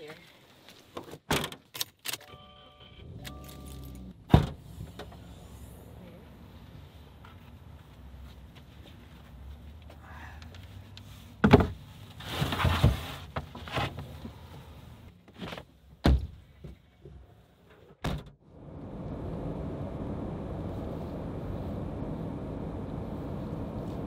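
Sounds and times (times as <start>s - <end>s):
car road noise from inside: 18.4s - 24.0s.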